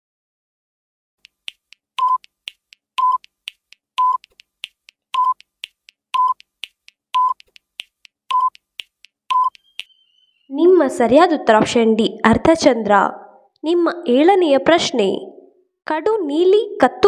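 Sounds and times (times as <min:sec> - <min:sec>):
light ticks: 0:01.2 - 0:09.9
short electronic beeps: 0:02.0 - 0:02.3, 0:03.0 - 0:03.3, 0:04.0 - 0:04.3, 0:05.2 - 0:05.4, 0:06.2 - 0:06.4, 0:07.2 - 0:07.4, 0:08.3 - 0:08.6, 0:09.3 - 0:10.4.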